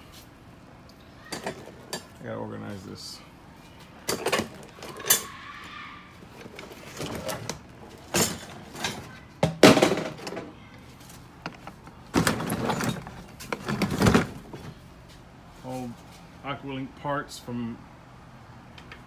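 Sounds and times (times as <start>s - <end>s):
parts containers clattering: 4.0s - 5.3s, 6.3s - 10.5s, 11.4s - 14.8s.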